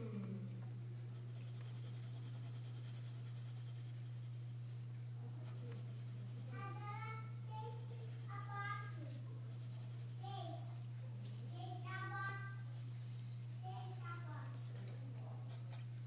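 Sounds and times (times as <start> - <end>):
low electrical hum: 0.0 - 16.0
pencil scratching on paper: 1.2 - 4.5, 5.4 - 6.9, 7.7 - 10.2
voice: 5.3 - 10.8.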